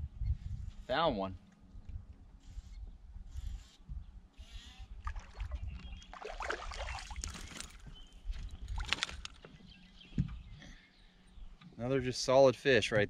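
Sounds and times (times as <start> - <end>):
fish splashing at water surface: 5.0 - 7.7.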